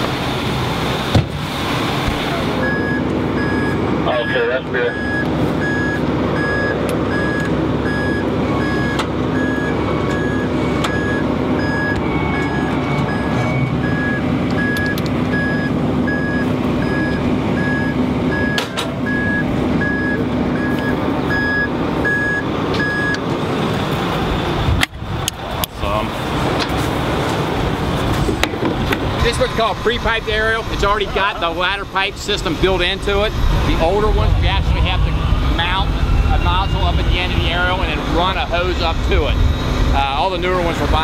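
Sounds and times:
truck engine running: 0:00.0 - 0:41.0
backup alarm beeping: 0:02.5 - 0:23.2.

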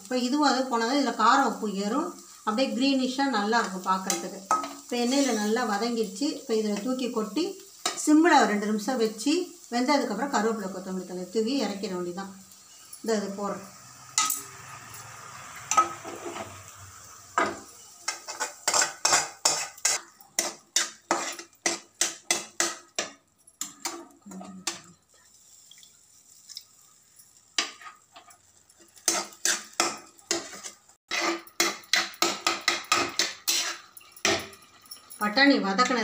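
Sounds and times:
spoon scraping metal pans: 0:03.3 - 0:07.1, 0:14.0 - 0:16.7, 0:17.4 - 0:25.2, 0:27.5 - 0:36.0.

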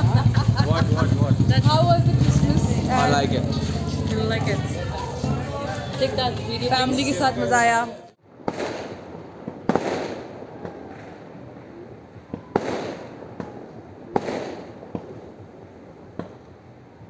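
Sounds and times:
fireworks bangs: 0:08.2 - 0:17.0
fireworks cracks: 0:08.2 - 0:17.0.

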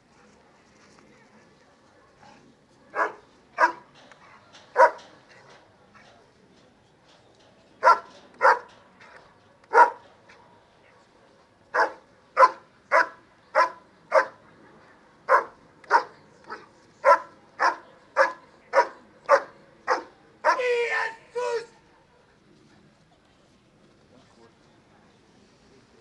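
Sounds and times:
dog barking loudly: 0:11.8 - 0:14.4, 0:17.1 - 0:20.7.

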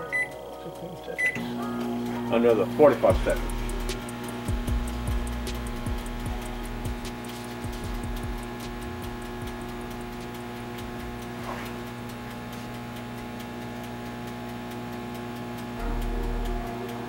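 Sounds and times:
microwave oven hum: 0:00.0 - 0:17.0
regular light ticking: 0:03.1 - 0:17.0
low rumble: 0:15.8 - 0:17.0.

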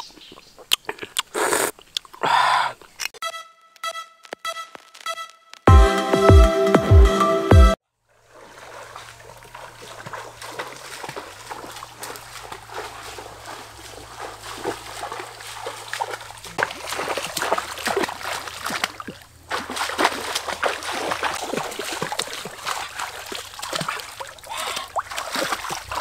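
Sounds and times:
bare feet splashing through stream: 0:08.0 - 0:26.0.

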